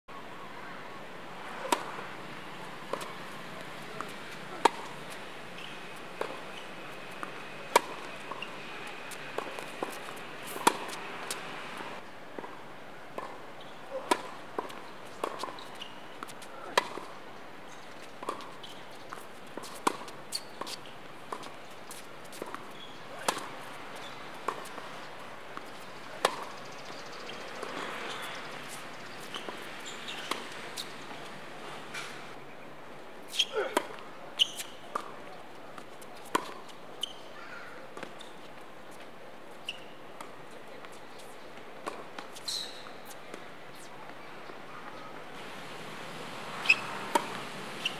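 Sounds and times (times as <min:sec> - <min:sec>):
racket hitting tennis ball: 0:01.6 - 0:02.0, 0:03.8 - 0:12.5, 0:13.9 - 0:15.6, 0:19.6 - 0:24.9, 0:25.6 - 0:26.5, 0:27.6 - 0:31.2, 0:36.2 - 0:36.6, 0:45.4 - 0:47.9
tennis ball bouncing: 0:01.6 - 0:02.0, 0:02.6 - 0:12.6, 0:13.2 - 0:17.1, 0:18.2 - 0:25.0, 0:25.6 - 0:26.6, 0:27.6 - 0:31.3, 0:33.6 - 0:35.2, 0:36.2 - 0:37.1, 0:41.8 - 0:43.4, 0:45.4 - 0:47.9.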